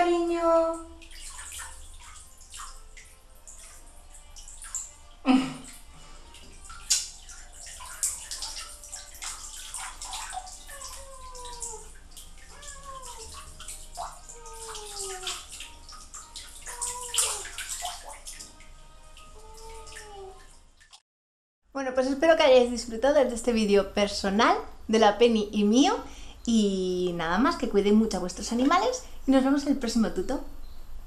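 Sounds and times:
water splashing in bathtub: 0:00.0 - 0:21.0.

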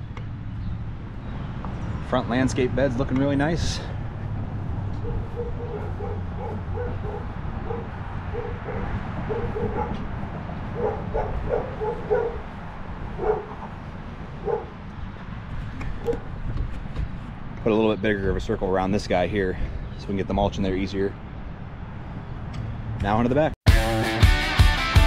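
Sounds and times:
dog barking: 0:05.0 - 0:10.1, 0:10.7 - 0:12.5, 0:13.1 - 0:13.6, 0:14.4 - 0:14.8, 0:16.0 - 0:16.3.

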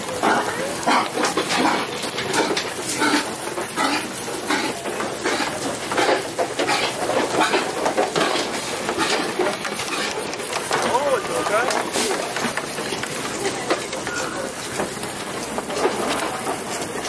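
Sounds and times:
pigs grunting: 0:00.2 - 0:10.2.

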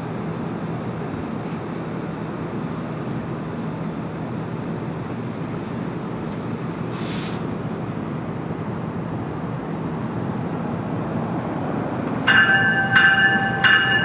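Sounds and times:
train low rumble: 0:00.0 - 0:14.0
brief hiss: 0:06.3 - 0:07.5.

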